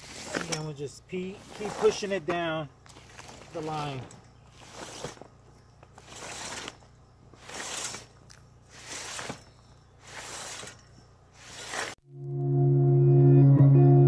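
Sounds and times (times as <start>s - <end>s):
fabric rustling: 0.0s - 12.0s
metal pipe scraping through fabric: 0.0s - 12.0s.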